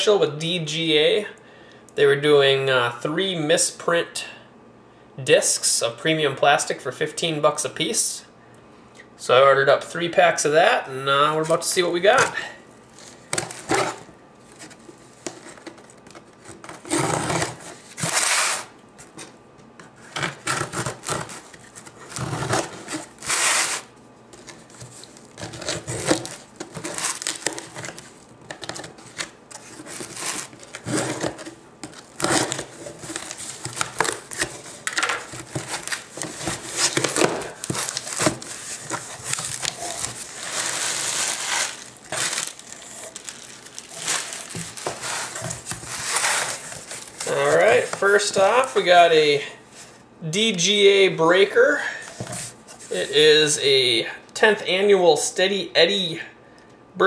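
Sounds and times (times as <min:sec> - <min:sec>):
cardboard flaps scraping: 0:12.1 - 0:19.3, 0:19.9 - 0:48.8
packing tape tearing: 0:12.9 - 0:19.3, 0:20.0 - 0:48.8
plastic bag crinkling: 0:20.9 - 0:48.9.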